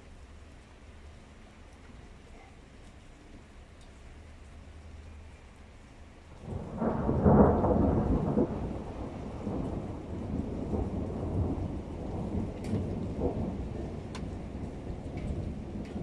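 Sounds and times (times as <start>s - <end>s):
thunder clap and rumble: 6.4s - 16.0s.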